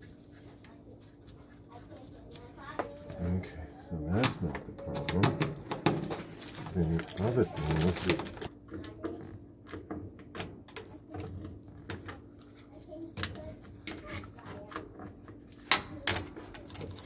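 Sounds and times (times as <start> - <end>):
plastic bag crinkling: 5.6 - 8.5.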